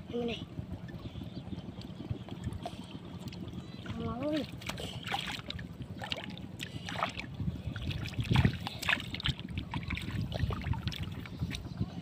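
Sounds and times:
hands splashing in water: 4.6s - 7.2s.

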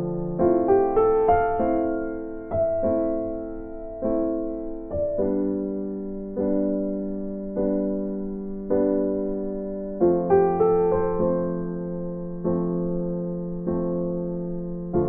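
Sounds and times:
gentle electric piano: 0.0s - 15.0s.

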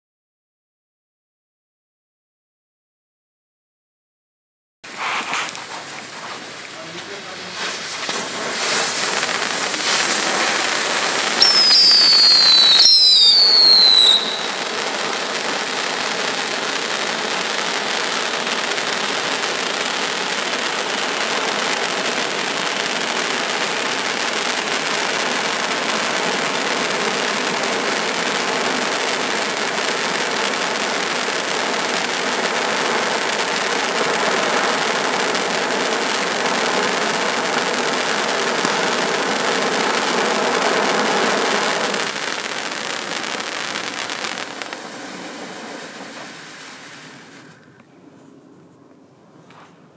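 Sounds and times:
firework fountain hissing: 4.8s - 47.8s
shrill falling whistles: 11.2s - 14.6s.

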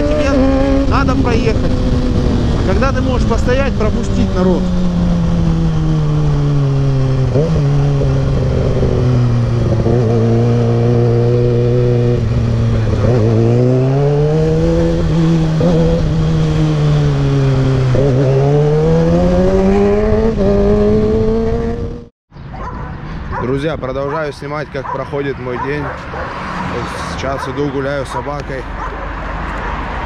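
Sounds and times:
motorcycle engine running: 0.0s - 22.1s.

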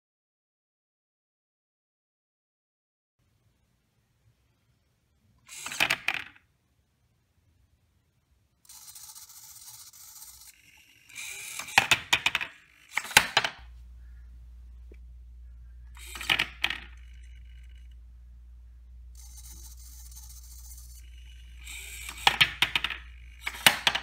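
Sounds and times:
servos whirring: 5.4s - 6.2s, 8.6s - 24.0s
plastic parts knocking: 5.5s - 6.4s, 11.1s - 13.8s, 15.9s - 17.1s, 21.6s - 24.0s
steady low hum: 6.6s - 24.0s.

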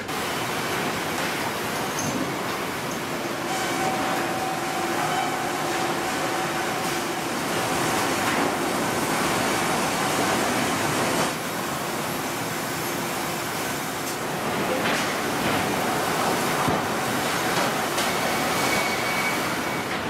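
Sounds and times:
sawmill machinery running: 0.0s - 20.0s.

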